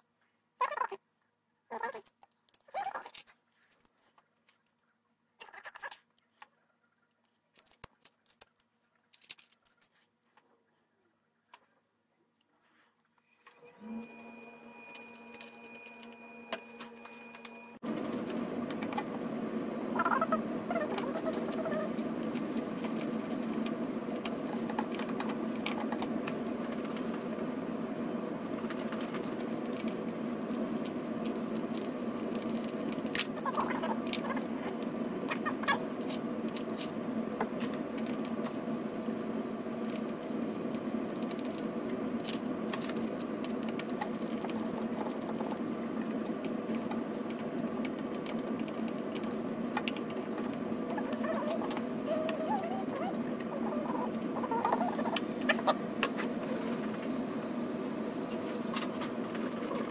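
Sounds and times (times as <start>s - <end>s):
steady low hum: 10.5s - 59.9s.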